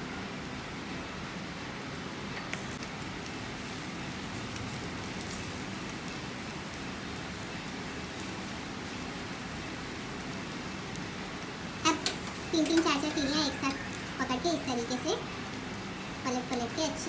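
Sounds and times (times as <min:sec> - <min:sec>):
meat sizzling over charcoal: 0:00.0 - 0:17.0.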